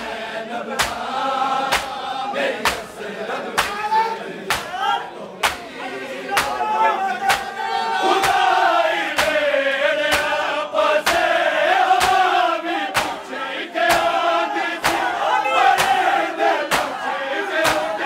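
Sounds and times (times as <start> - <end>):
crowd of men chanting: 0.0 - 18.0
collective chest slaps: 0.7 - 1.1, 1.7 - 2.0, 2.6 - 3.0, 3.6 - 3.8, 4.5 - 4.8, 5.4 - 5.7, 6.4 - 6.6, 7.3 - 7.5, 8.2 - 9.4, 10.1 - 10.4, 11.0 - 14.2, 14.8 - 15.1, 15.8 - 16.1, 16.7 - 17.0, 17.6 - 18.0.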